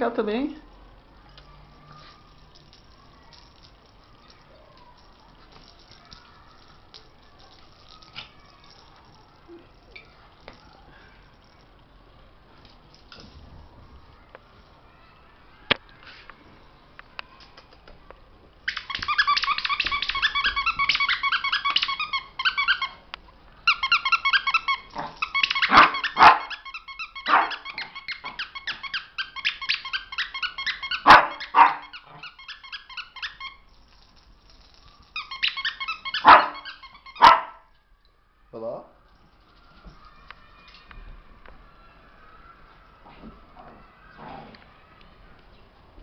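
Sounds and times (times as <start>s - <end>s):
squeaky toy squeaking: 18.6s - 23.0s, 23.6s - 33.8s, 35.0s - 37.6s
puppy barking: 25.0s - 26.6s, 27.2s - 28.4s, 30.9s - 32.3s, 36.1s - 37.6s.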